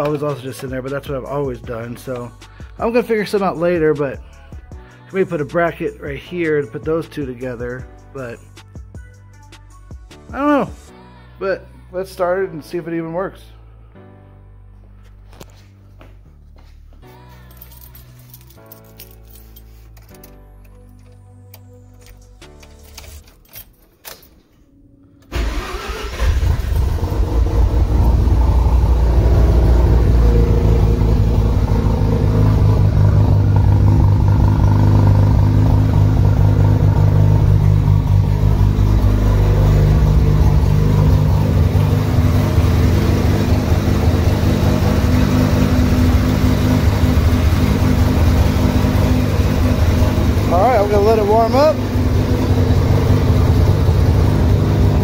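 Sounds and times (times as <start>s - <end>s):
rotary engine starting and idling: 25.2s - 55.0s.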